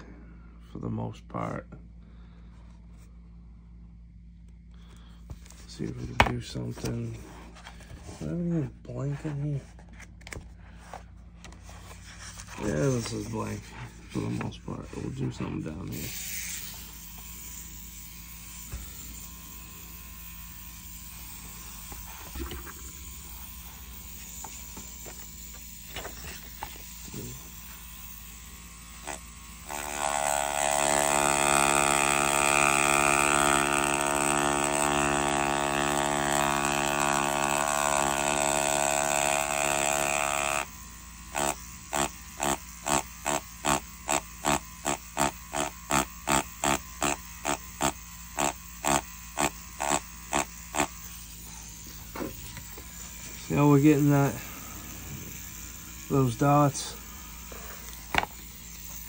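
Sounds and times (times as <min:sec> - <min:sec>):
rotary tattoo pen humming: 0:01.9 - 0:08.6, 0:09.2 - 0:59.0.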